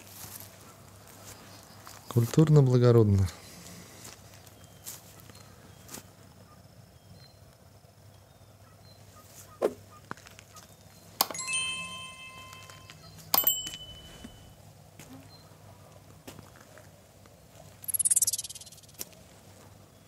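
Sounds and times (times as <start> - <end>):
bright multi-tone chime: 11.2 - 14.6
ringing ding: 11.2 - 14.6
mouse-style click: 17.9 - 19.1.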